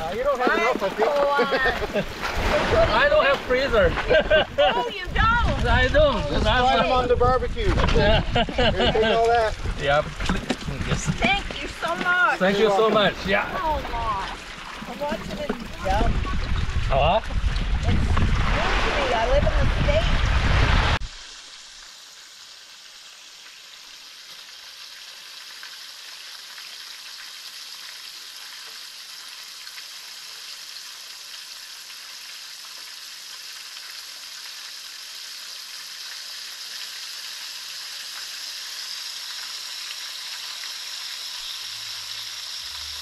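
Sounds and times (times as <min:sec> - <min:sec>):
fish frying in hot oil: 0:21.0 - 0:43.0.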